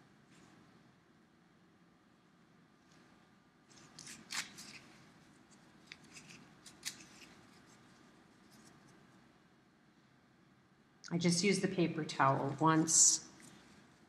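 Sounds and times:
paper towel crinkling: 3.7s - 9.1s.

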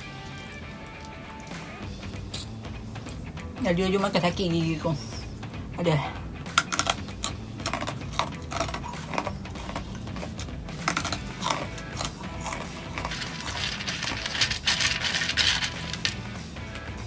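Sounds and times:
crunching and chewing snacks: 6.5s - 16.4s
fingers rustling through snacks: 7.6s - 16.4s.

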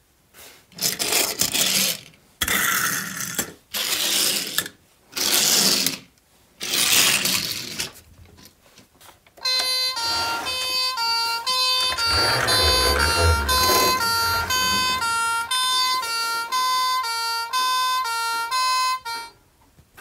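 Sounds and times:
toy fire engine siren: 9.4s - 19.3s.

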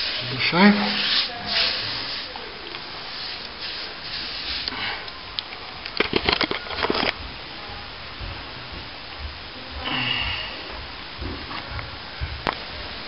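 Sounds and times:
wet brush swishing on plaster: 0.0s - 2.4s, 3.0s - 4.7s.

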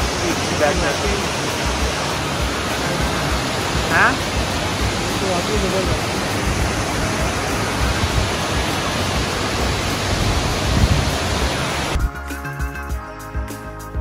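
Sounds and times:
waterfall rushing: 0.0s - 12.0s
music: 0.0s - 14.0s.

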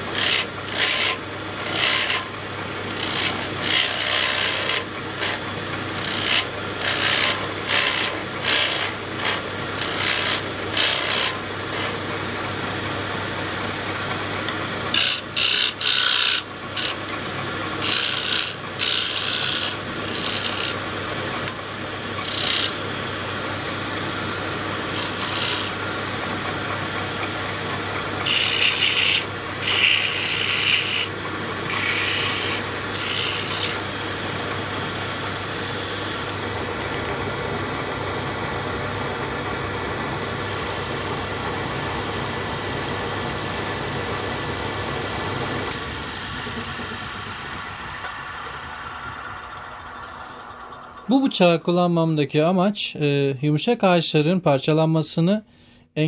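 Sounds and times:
wood lathe humming: 0.0s - 51.7s
turning tools scraping wood: 0.1s - 12.0s, 14.9s - 17.0s, 17.8s - 20.8s, 22.2s - 22.8s, 24.9s - 25.8s, 28.2s - 33.9s.

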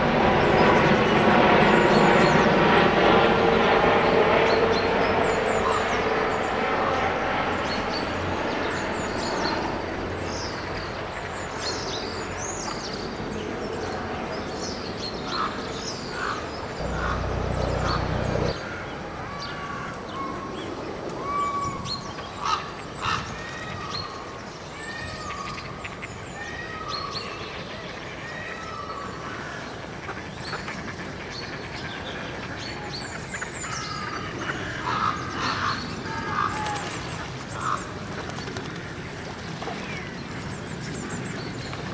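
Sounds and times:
ducks and geese calling: 16.2s - 18.6s
low rumble: 16.8s - 18.6s.

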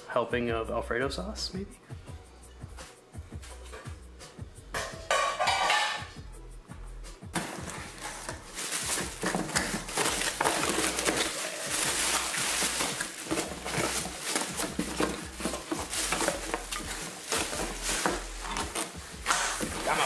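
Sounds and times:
plastic wrap crinkling: 7.4s - 20.0s.

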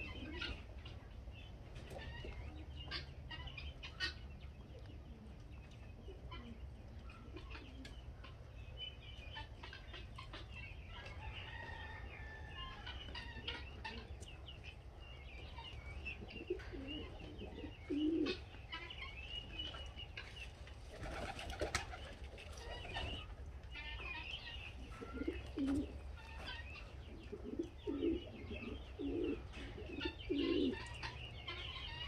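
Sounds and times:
birds chirping and twittering: 0.0s - 32.0s
wing flapping: 20.9s - 23.2s.

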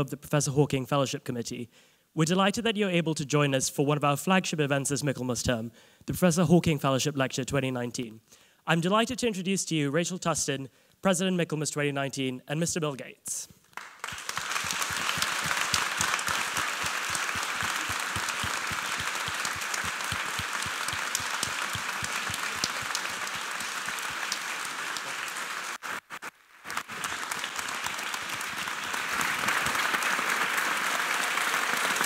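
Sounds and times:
audience applauding: 13.7s - 32.0s.

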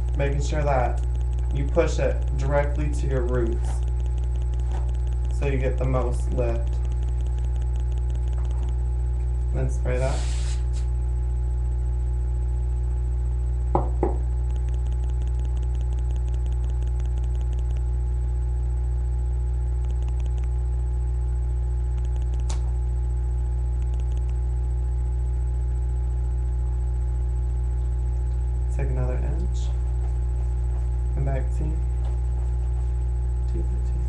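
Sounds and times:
low electrical hum: 0.0s - 34.0s
hairbrush scratching through hair: 10.0s - 10.9s.

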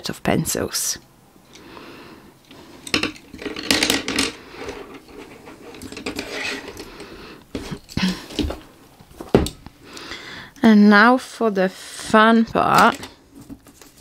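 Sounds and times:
pencils clattering on wooden desk: 2.8s - 8.6s, 12.6s - 14.0s.

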